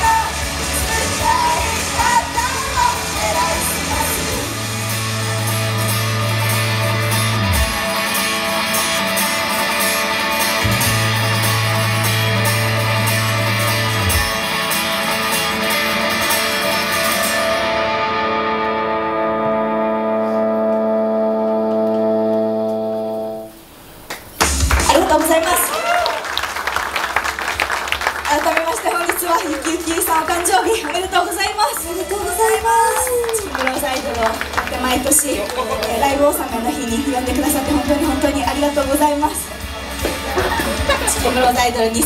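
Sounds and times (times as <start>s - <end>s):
instrumental rock music: 0.0s - 23.6s, 31.1s - 42.0s
held guitar chord ringing: 5.6s - 23.7s.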